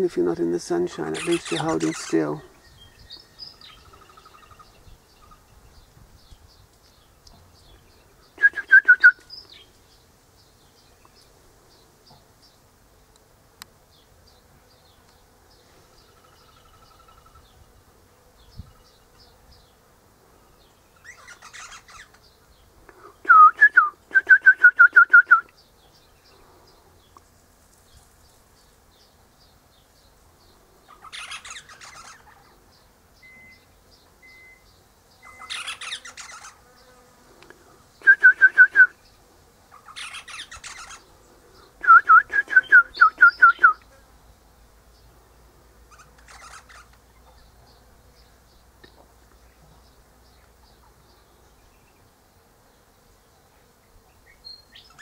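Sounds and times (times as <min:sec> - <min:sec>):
bird scratchy chatter: 0:00.6 - 0:02.5, 0:21.0 - 0:22.3, 0:30.9 - 0:32.6, 0:35.3 - 0:36.7, 0:39.7 - 0:41.7, 0:45.9 - 0:47.0.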